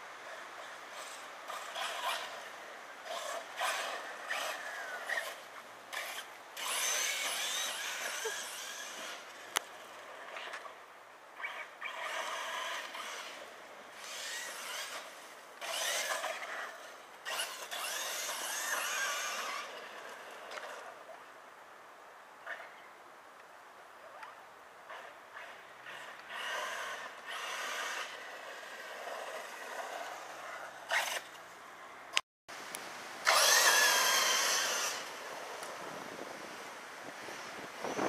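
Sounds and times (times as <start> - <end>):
electric motor whine: 1.0 - 10.6, 11.4 - 20.9, 33.2 - 36.5.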